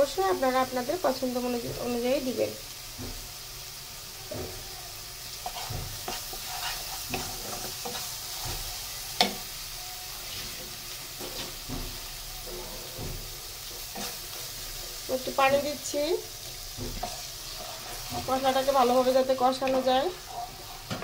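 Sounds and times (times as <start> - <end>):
paste sizzling in hot oil: 0.0 - 21.0
spatula scraping wok: 0.0 - 21.0
spatula knocking on pan: 11.2 - 14.1, 16.4 - 20.1.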